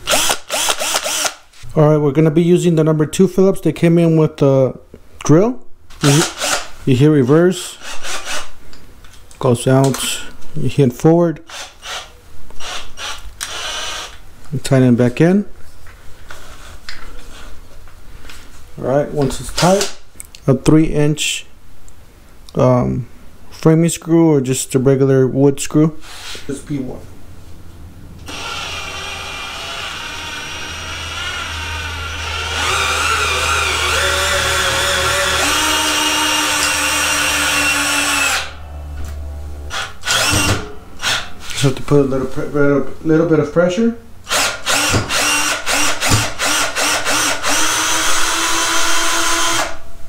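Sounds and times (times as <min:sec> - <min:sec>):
cordless drill driving screw: 0:00.0 - 0:01.4, 0:06.0 - 0:06.7, 0:07.8 - 0:08.5, 0:11.5 - 0:14.2, 0:28.3 - 0:38.5, 0:39.7 - 0:41.3, 0:44.3 - 0:49.8.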